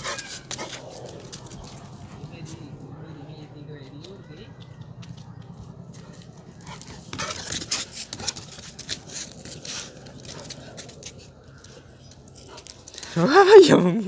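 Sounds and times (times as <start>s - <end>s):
dog breathing hard: 0.0s - 2.4s, 5.9s - 13.1s.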